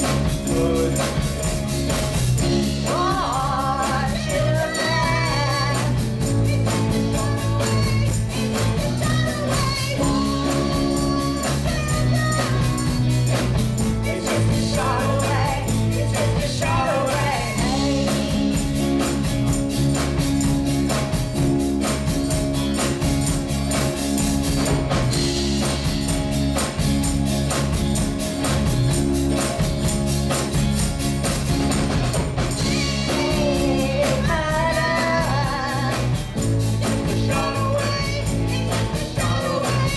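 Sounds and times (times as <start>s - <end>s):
drum kit beat: 0.0s - 39.9s
electric guitars and bass: 0.0s - 39.9s
woman singing: 2.6s - 18.6s, 32.5s - 39.9s.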